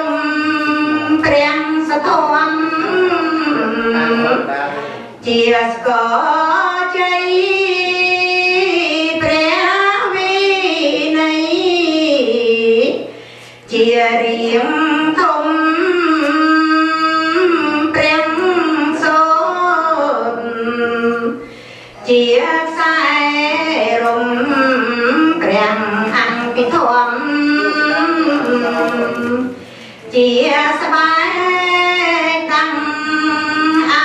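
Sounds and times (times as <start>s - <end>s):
high voice singing slow melody: 22.0s - 30.6s.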